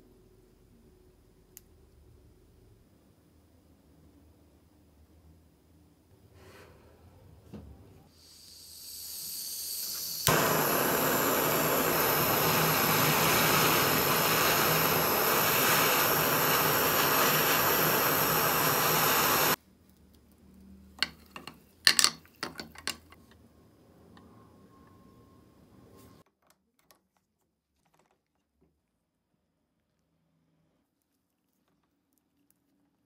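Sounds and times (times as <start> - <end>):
jet torch flame hissing: 8.1 - 19.6.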